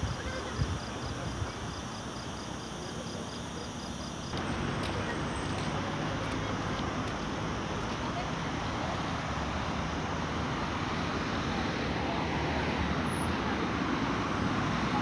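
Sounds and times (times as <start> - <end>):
distant road traffic: 0.0 - 15.0.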